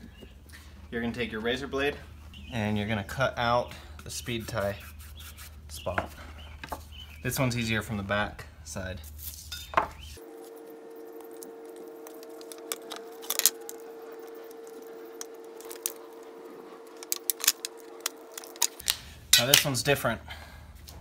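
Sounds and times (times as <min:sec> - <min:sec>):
faint hum: 0:10.0 - 0:19.4.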